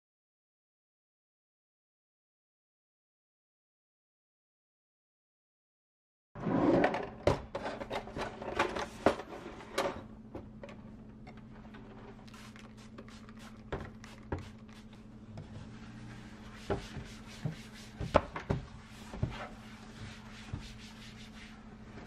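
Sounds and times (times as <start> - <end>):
steady low hum: 8.2 - 22.0.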